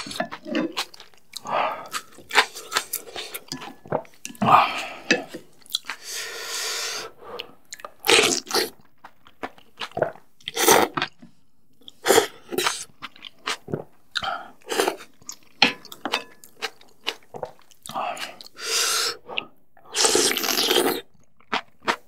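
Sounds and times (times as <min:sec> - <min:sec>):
wet chewing: 0:00.0 - 0:06.1, 0:07.4 - 0:18.6, 0:20.2 - 0:22.0
slurping noodles: 0:17.9 - 0:21.1.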